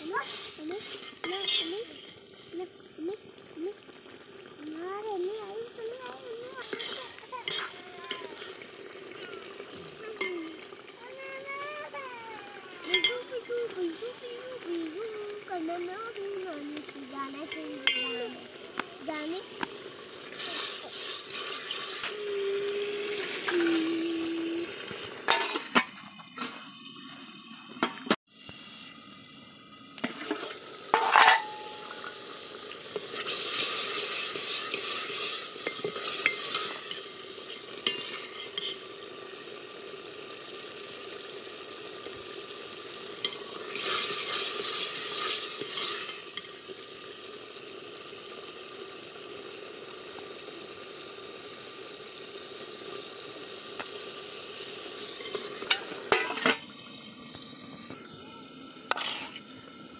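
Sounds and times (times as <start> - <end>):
ladle stirring in pot: 0.0 - 2.3, 6.5 - 10.9, 16.8 - 18.8, 19.5 - 22.1, 25.0 - 27.1, 30.0 - 38.9, 43.2 - 46.6, 55.0 - 56.7, 58.9 - 59.6.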